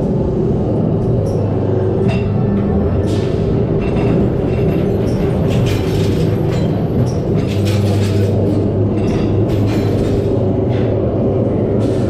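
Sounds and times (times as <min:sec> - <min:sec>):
ride car rumbling on track: 0:00.0 - 0:12.0
clacks and rattles: 0:03.1 - 0:11.0.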